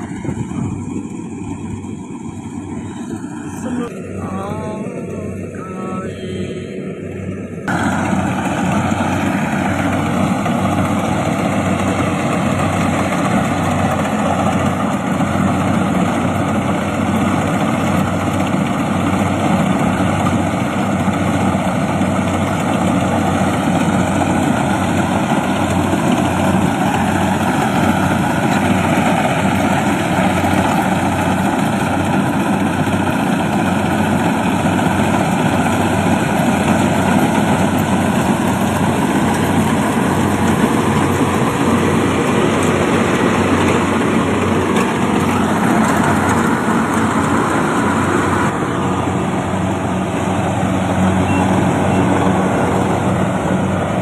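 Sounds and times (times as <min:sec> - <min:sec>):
low hum: 0:00.0 - 0:17.1
combine harvester running: 0:00.0 - 0:54.0.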